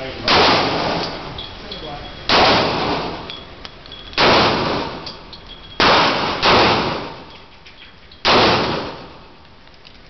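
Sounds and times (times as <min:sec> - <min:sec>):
pistol shots echoing: 0:00.2 - 0:01.2, 0:02.3 - 0:03.3, 0:04.2 - 0:05.2, 0:05.8 - 0:07.4, 0:08.2 - 0:09.3
faint metallic clinks: 0:01.3 - 0:02.3, 0:03.2 - 0:04.2, 0:05.0 - 0:05.8.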